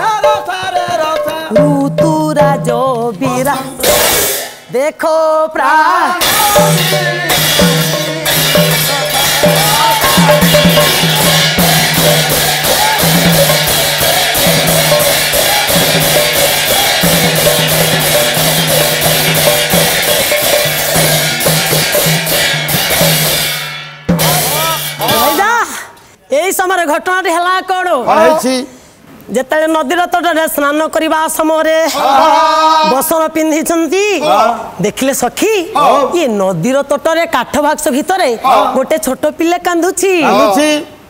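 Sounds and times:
hand drum rhythm: 0:00.0 - 0:04.6, 0:06.2 - 0:25.6
jingling cymbals: 0:06.2 - 0:25.4.

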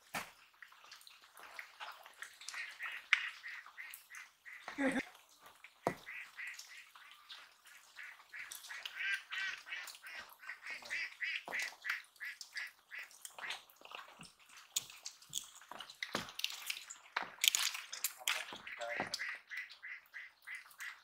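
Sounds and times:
ducks quacking: 0:02.5 - 0:05.0, 0:05.9 - 0:13.5, 0:18.3 - 0:21.0.

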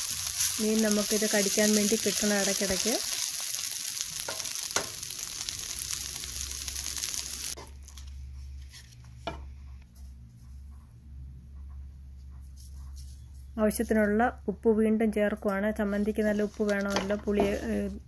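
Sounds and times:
food sizzling: 0:00.0 - 0:07.7
spatula scraping a pan: 0:15.8 - 0:18.0.

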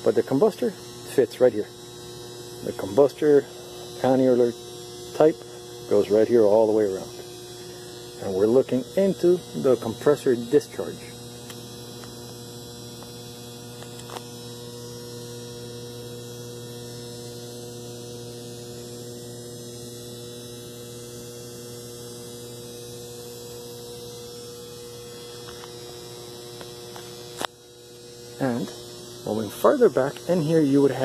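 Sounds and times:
electrical mains hum: 0:00.0 - 0:31.0.

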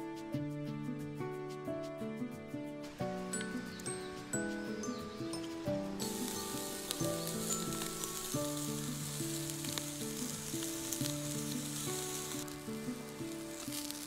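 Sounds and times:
background music: 0:00.0 - 0:14.0
meat sizzling on a grill: 0:03.0 - 0:14.0.

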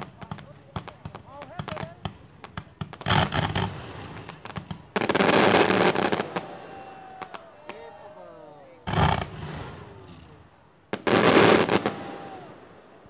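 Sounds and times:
fireworks pops: 0:00.0 - 0:06.5, 0:08.9 - 0:10.2
fireworks crackle: 0:00.0 - 0:12.9.

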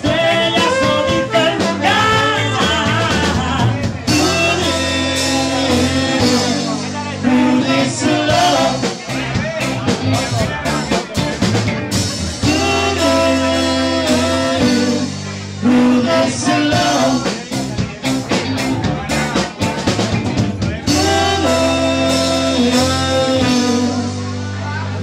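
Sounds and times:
live rock band playing: 0:00.0 - 0:25.0
trombone long notes: 0:00.1 - 0:08.8, 0:12.4 - 0:17.2, 0:20.9 - 0:24.7.

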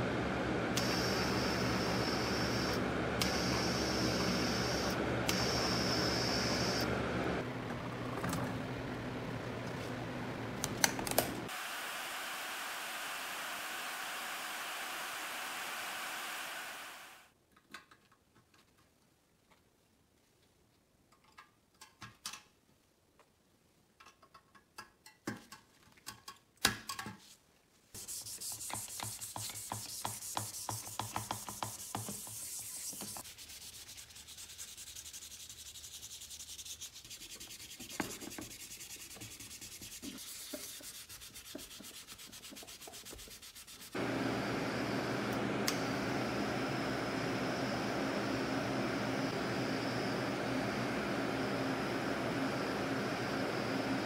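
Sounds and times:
sandpaper scratching metal: 0:28.0 - 0:44.0.

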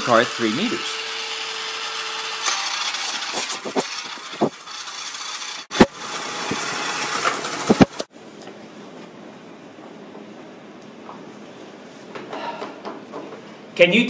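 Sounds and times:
toy motor whirring: 0:00.0 - 0:08.1.

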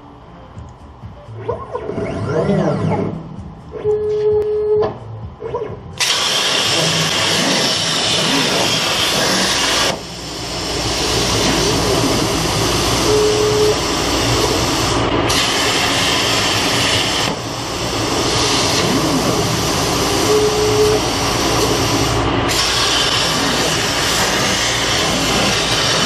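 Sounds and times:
plasma cutter hissing: 0:06.0 - 0:26.0.

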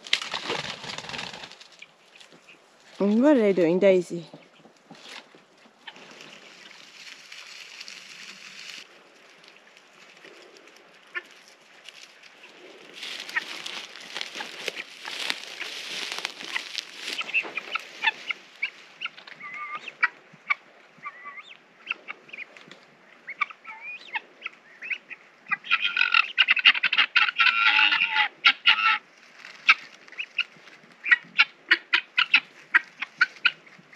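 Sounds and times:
rustling hiss: 0:00.0 - 0:19.3
guinea fowl calling: 0:04.3 - 0:08.9, 0:09.5 - 0:33.9.

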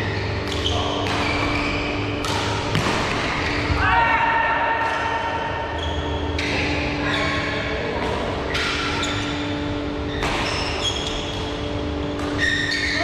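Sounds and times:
shoes squeaking on court floor: 0:00.0 - 0:03.8, 0:05.0 - 0:07.7, 0:08.5 - 0:13.0
rackets smacking shuttlecock: 0:00.4 - 0:03.7, 0:12.1 - 0:12.8.

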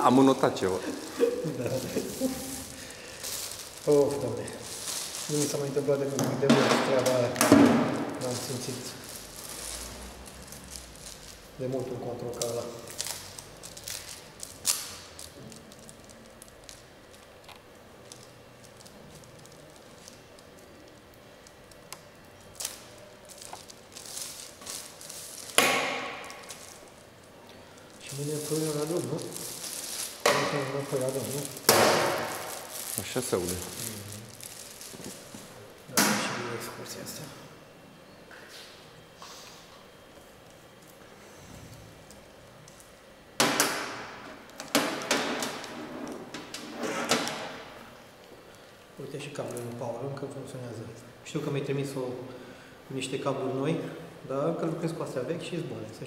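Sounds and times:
rustling: 0:00.9 - 0:06.2, 0:08.0 - 0:17.2, 0:22.5 - 0:35.6.

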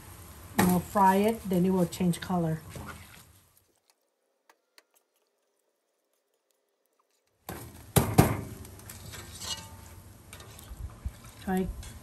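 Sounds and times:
wire strainer scooping in hot oil: 0:08.5 - 0:12.0.

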